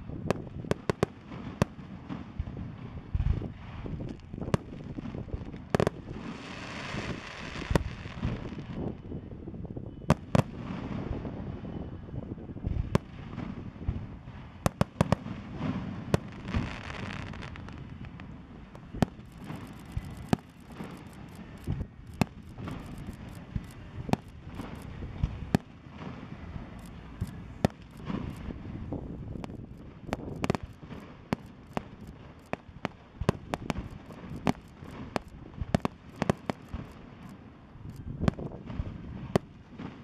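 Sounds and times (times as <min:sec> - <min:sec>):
fireworks bursting bangs: 0:00.0 - 0:09.0, 0:10.1 - 0:11.9, 0:12.5 - 0:40.0
rapid crackling pops: 0:16.1 - 0:26.2, 0:29.3 - 0:38.5.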